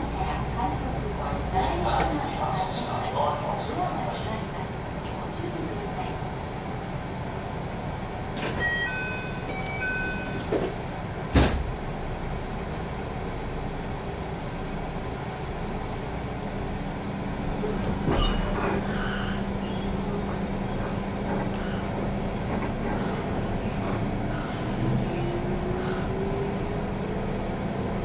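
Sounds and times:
train interior rumble: 0.0s - 28.0s
train motor hum: 9.6s - 28.0s
loud thump: 11.3s - 11.7s.

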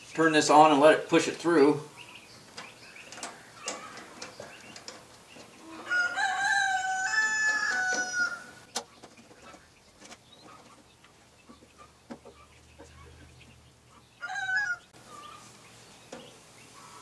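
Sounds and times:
rooster crowing: 5.6s - 8.6s, 14.2s - 15.4s.

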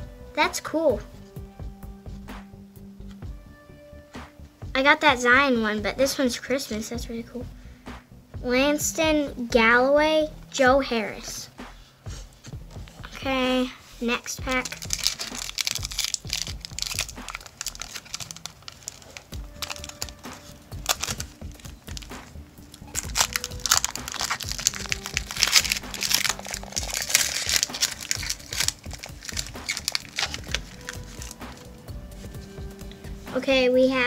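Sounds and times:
plastic wrapper crinkling and tearing: 14.4s - 31.8s.

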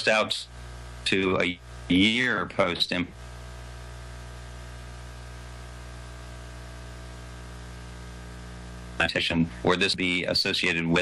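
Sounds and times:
low electrical hum: 0.0s - 11.0s
steady hiss: 0.0s - 11.0s.

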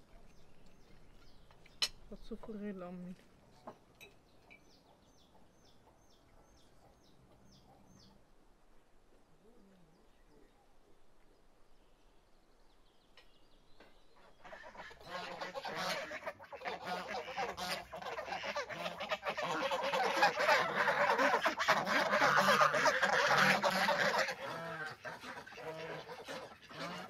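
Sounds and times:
geese honking: 14.4s - 27.0s.

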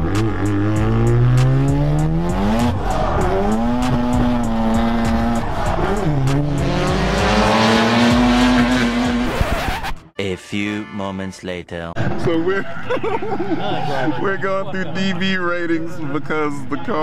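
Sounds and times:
rotary engine revving hard: 0.0s - 9.9s.

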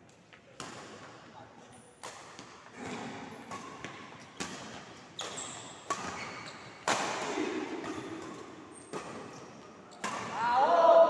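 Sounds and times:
court shoes squeaking: 1.6s - 10.4s
rackets hitting shuttlecock: 2.0s - 10.6s.

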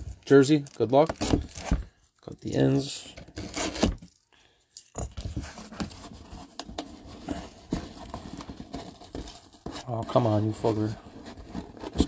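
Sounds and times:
cardboard rustling and scraping: 0.0s - 4.1s, 5.1s - 12.0s
box cutter scraping cardboard: 3.3s - 4.0s, 6.9s - 12.0s.

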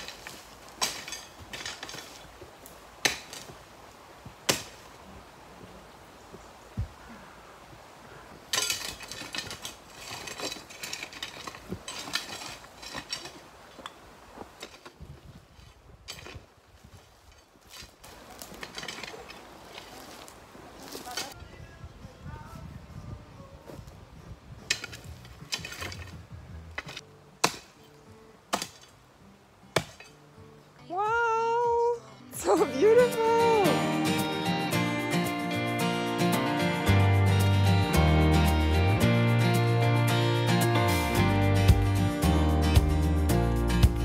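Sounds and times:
rock scraping over stone and gravel: 8.6s - 16.5s, 17.3s - 21.4s
faint background music: 21.0s - 44.0s.

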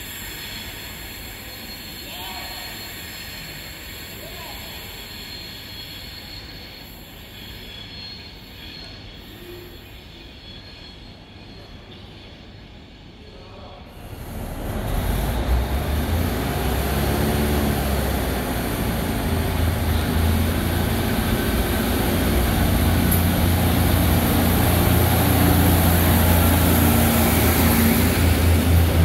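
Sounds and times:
diesel train engine droning: 13.8s - 29.0s.

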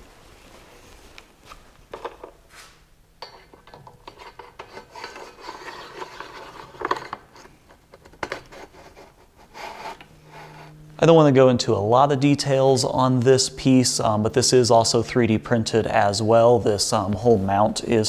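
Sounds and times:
plastic rubbing and scraping: 4.0s - 10.8s.

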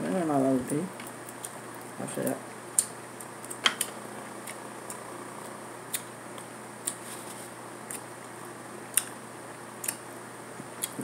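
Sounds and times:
electric fan humming: 0.0s - 11.0s.

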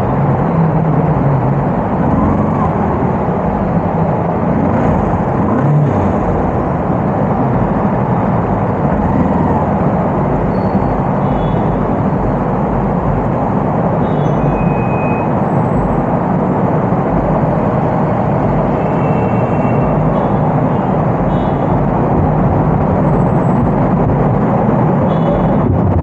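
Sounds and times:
wind and road noise: 0.0s - 26.0s.

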